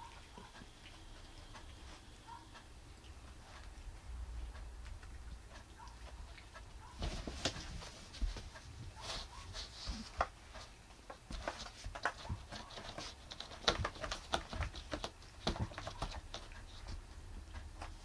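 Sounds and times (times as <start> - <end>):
cat scratching cardboard: 6.9 - 18.0.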